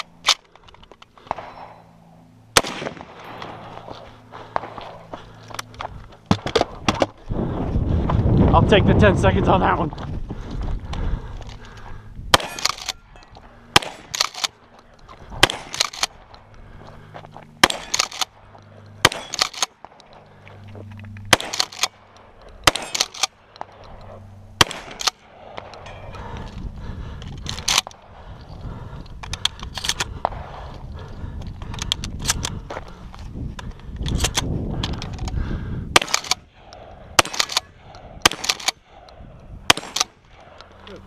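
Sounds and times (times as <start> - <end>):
shotgun shots: 2.5 - 3.7, 12.3 - 13.0, 13.7 - 14.6, 15.4 - 16.2, 17.6 - 18.4, 19.0 - 20.0, 21.3 - 22.0, 22.6 - 23.8, 24.6 - 25.7, 35.9 - 40.6.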